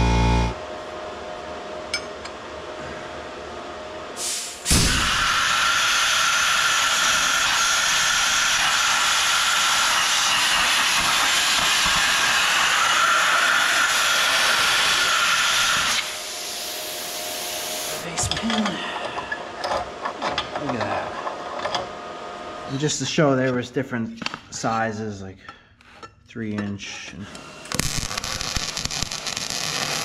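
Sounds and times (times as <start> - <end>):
air hissing from torch: 4.2 - 18.0
plasma cutter arc hissing: 4.2 - 18.1, 27.7 - 30.0.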